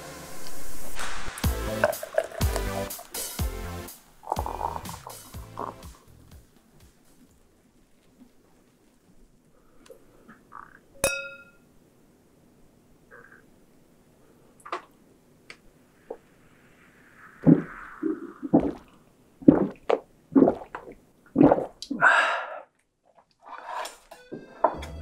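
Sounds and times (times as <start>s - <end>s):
man gulping beer: 1.7s - 3.1s, 4.2s - 5.9s, 18.5s - 22.1s.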